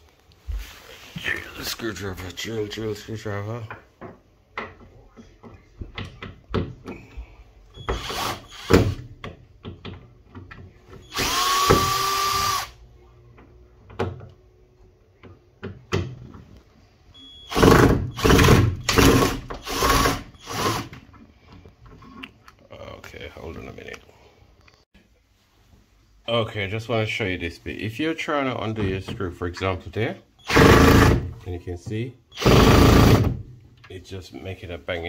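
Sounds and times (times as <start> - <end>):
cordless drill motor whining: 7.8 - 8.8, 11.1 - 12.8.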